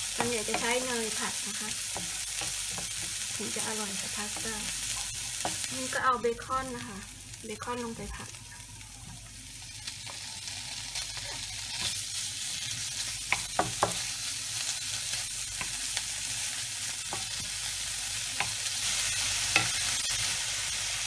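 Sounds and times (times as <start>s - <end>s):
bacon sizzling in a frying pan: 0.0s - 21.0s
wooden spoon knocking on pan: 13.3s - 14.0s.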